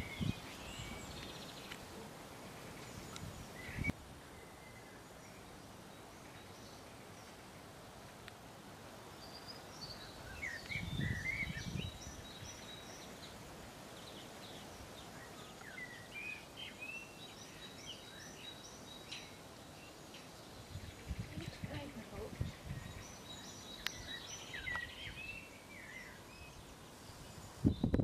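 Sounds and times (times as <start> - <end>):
faint outdoor hush: 0.0 - 28.0
songbirds chirping: 0.0 - 28.0.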